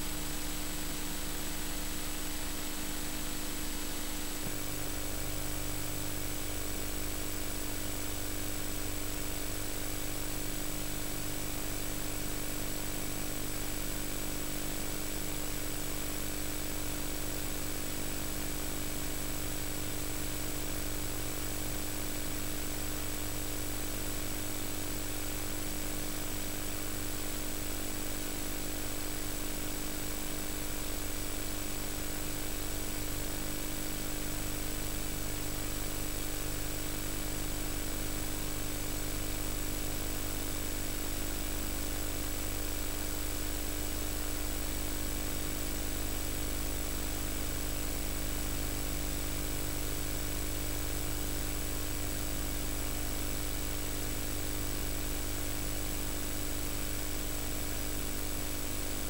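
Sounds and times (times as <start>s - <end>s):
electrical hum and buzz: 0.0s - 18.4s, 28.5s - 46.4s, 53.4s - 59.0s.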